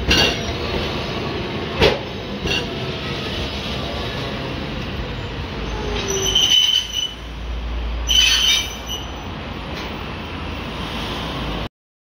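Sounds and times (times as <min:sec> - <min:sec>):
streetcar rolling rumble: 0:00.0 - 0:11.7
wheels squealing: 0:05.2 - 0:07.3, 0:08.0 - 0:09.4.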